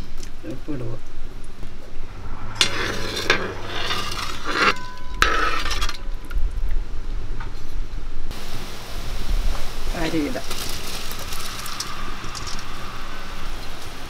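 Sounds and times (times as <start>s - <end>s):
metal ladle scraping a metal pan: 2.6s - 6.3s
light sizzle of frying spices: 4.2s - 14.0s.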